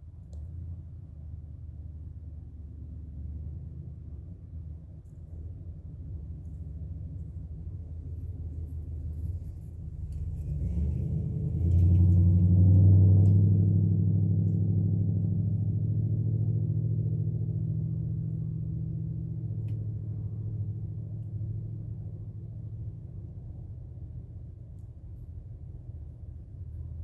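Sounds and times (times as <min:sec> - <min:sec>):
vehicle engine passing by: 0:07.2 - 0:24.4.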